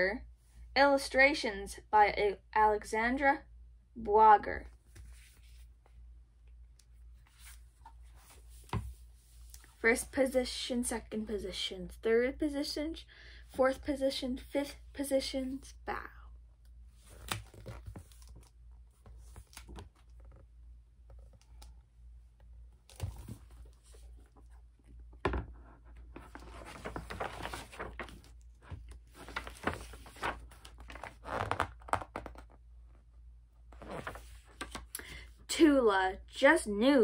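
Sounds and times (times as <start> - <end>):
book pages rustling: 4.8 - 6.0, 6.8 - 9.8, 16.9 - 21.8, 22.7 - 32.6, 33.7 - 34.9.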